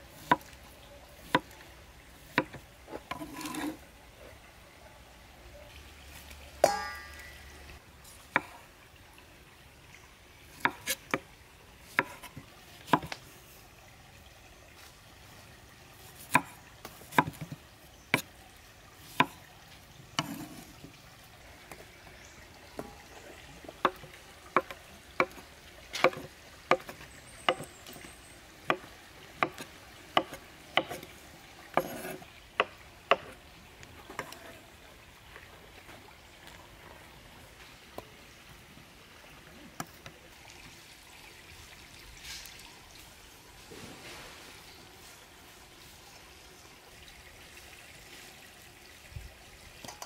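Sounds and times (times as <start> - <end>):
cleaver chopping on wooden board: 26.0 - 28.1, 29.4 - 31.1, 31.7 - 33.3.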